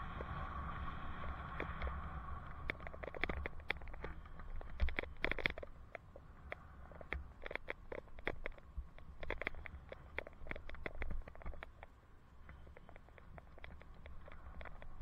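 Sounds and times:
wind and road rumble: 0:00.0 - 0:15.0
bicycle clicking and rattling: 0:01.2 - 0:11.9.

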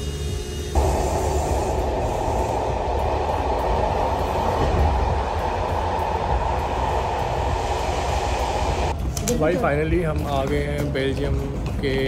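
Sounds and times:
passenger train rumbling: 0:00.0 - 0:12.0.

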